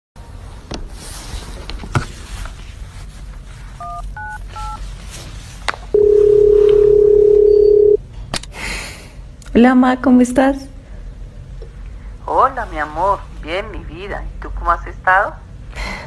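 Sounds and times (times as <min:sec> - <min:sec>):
steady phone-line tone: 0:03.8 - 0:04.8, 0:05.9 - 0:08.0
telephone keypad tones: 0:06.0 - 0:08.0.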